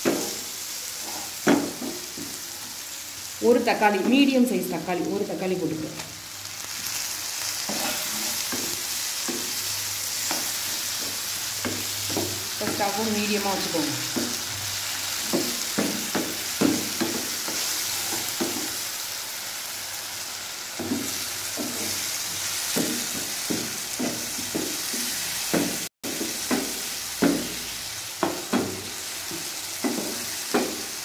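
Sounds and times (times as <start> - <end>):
wooden spatula scraping a pan: 0.0 - 2.8, 7.6 - 18.8, 20.8 - 27.6
masala sizzling in a pan: 0.0 - 31.0.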